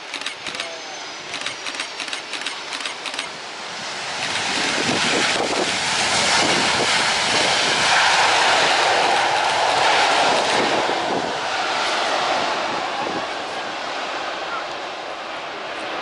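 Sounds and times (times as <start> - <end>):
jet engine roar: 0.0 - 16.0
short clicks: 0.1 - 0.7, 1.3 - 3.4.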